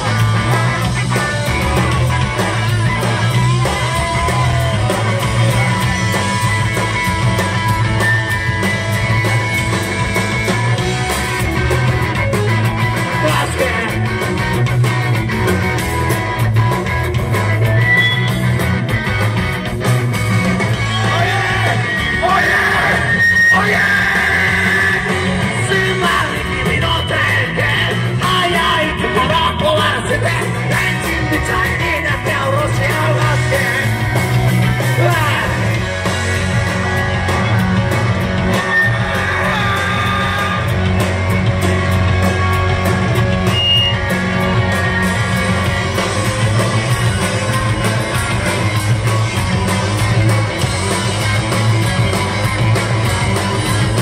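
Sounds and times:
drums: 0:00.0 - 0:54.0
electric guitar: 0:00.0 - 0:54.0
person yelling singing: 0:03.2 - 0:06.1, 0:20.8 - 0:34.0, 0:38.5 - 0:40.9.

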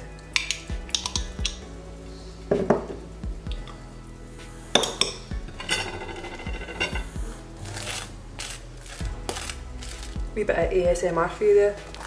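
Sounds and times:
metal spoon scraping glass jar: 0:04.8 - 0:07.2.

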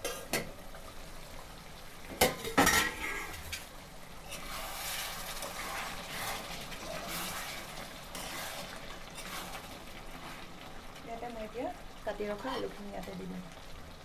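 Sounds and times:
metal spatula scraping a wok: 0:04.2 - 0:10.5.

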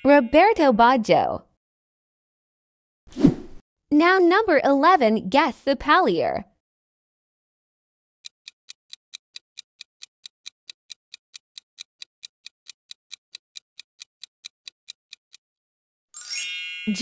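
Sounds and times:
clock ticking: 0:08.2 - 0:15.4.

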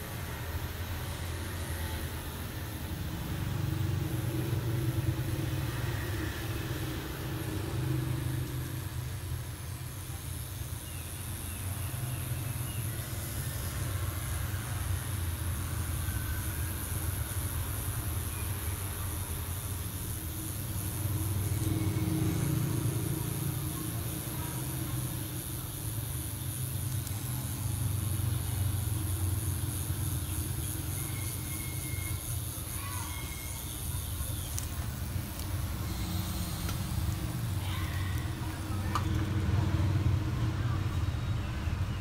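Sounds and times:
tattoo machine humming: 0:00.0 - 0:41.4.

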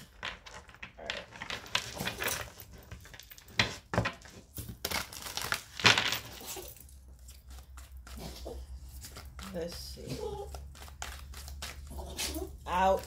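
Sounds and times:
cards being shuffled: 0:00.0 - 0:13.0.

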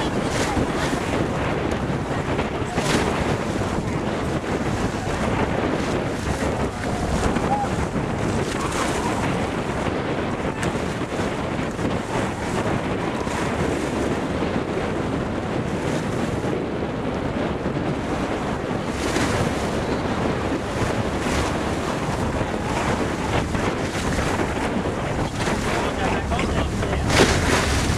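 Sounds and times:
choppy sea water: 0:00.0 - 0:27.9
wind buffeting microphone: 0:00.0 - 0:27.9
low rumble: 0:19.9 - 0:27.9.

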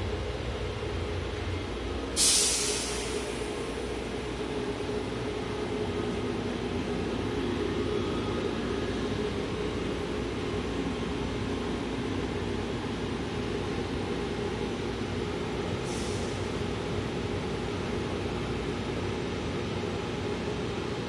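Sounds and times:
train humming at platform: 0:00.0 - 0:21.0
brief hiss: 0:02.2 - 0:03.4.

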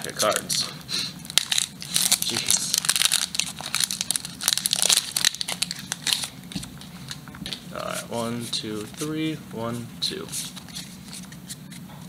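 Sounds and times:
foil wrapper crinkling and tearing: 0:01.2 - 0:07.2.

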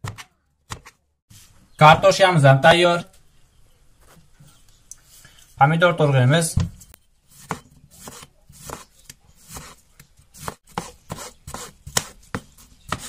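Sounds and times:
knife slicing tomato on cutting board: 0:07.3 - 0:13.0.

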